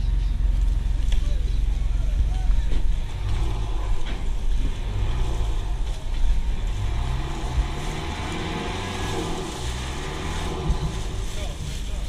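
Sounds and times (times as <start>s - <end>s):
boat engine running: 0.0s - 12.0s.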